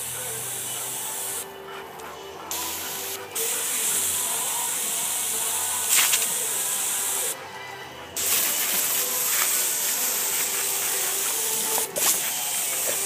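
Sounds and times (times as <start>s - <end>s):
hose nozzle spraying water: 2.5s - 7.4s, 8.2s - 13.0s.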